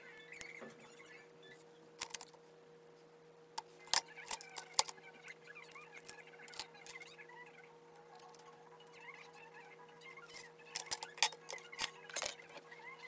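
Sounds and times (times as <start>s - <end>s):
clicks of small phone parts: 2.0s - 2.4s, 3.9s - 5.0s, 10.7s - 12.6s.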